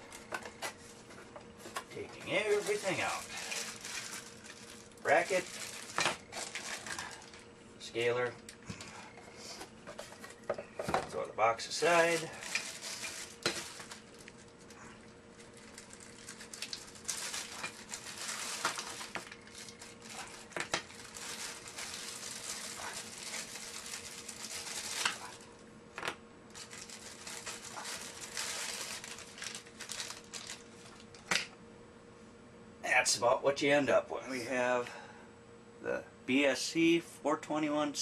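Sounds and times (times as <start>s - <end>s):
plastic bags crinkling: 1.7s - 7.5s, 11.8s - 25.6s, 26.5s - 31.4s.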